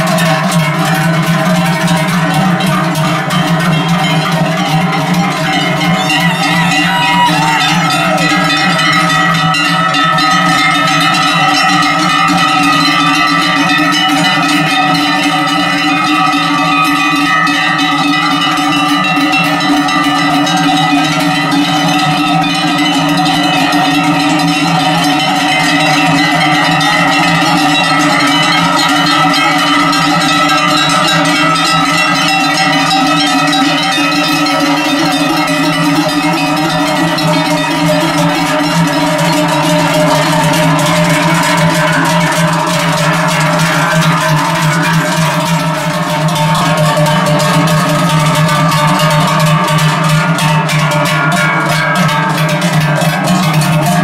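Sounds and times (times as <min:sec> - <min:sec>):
cowbells clanging: 0:00.0 - 0:54.0.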